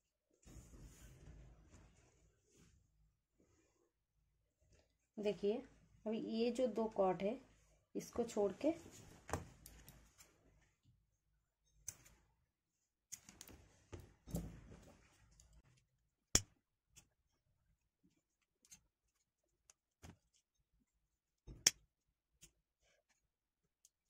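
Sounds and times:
cord rustling: 8.4 - 10.7, 13.1 - 15.8.

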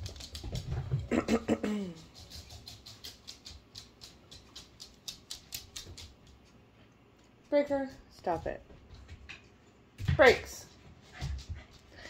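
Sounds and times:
dog claws clicking on wooden floor: 0.0 - 1.1, 2.0 - 6.6.

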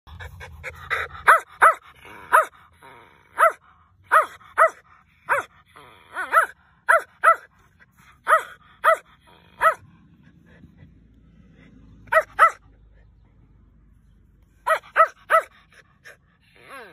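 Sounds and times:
puppy yapping: 3.3 - 5.5, 6.1 - 7.5, 8.2 - 9.8, 12.1 - 12.7, 14.6 - 15.5.

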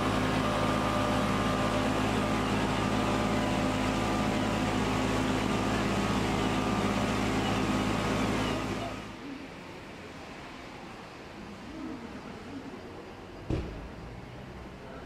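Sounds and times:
pump humming: 0.0 - 9.2.

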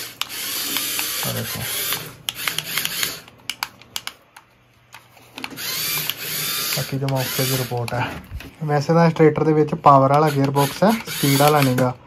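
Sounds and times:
electric gear motor whining: 0.0 - 3.3, 5.4 - 8.3, 10.1 - 12.0
clicks: 0.1 - 9.3, 10.0 - 12.0.

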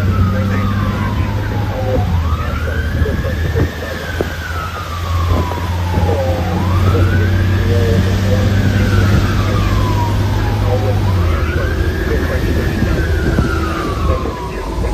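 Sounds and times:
diesel engine drone: 0.0 - 14.9
fire engine siren wailing: 0.0 - 14.9.

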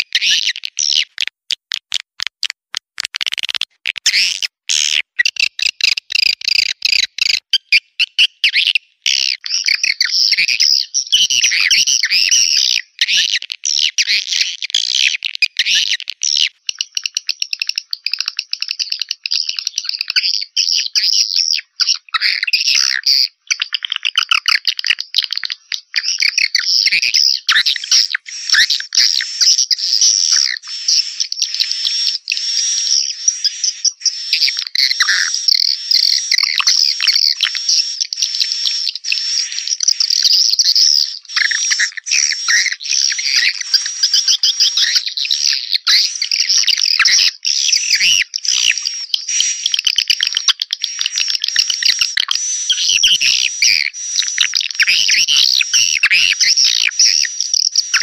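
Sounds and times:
sharp clicks: 1.2 - 4.5
swiftlets chirping and twittering: 26.0 - 58.0.

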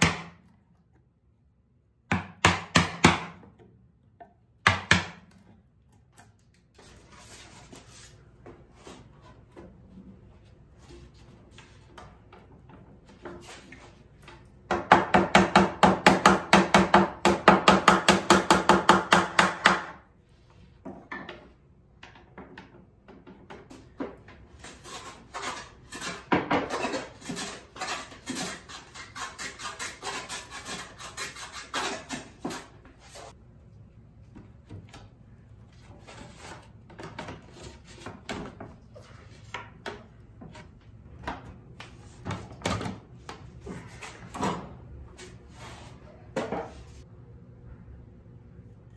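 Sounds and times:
hand tool scraping wooden board: 24.5 - 33.4.

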